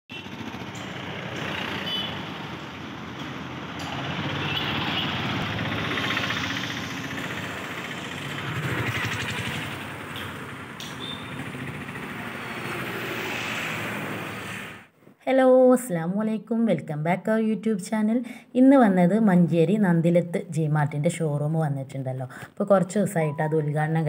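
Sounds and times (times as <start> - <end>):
road traffic passing: 0.1 - 14.9.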